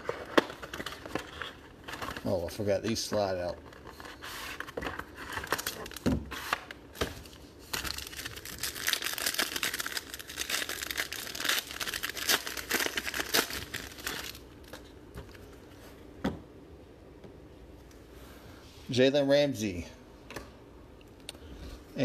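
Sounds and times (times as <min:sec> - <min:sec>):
wrapper tearing and crinkling: 0:05.1 - 0:06.6, 0:07.6 - 0:14.8.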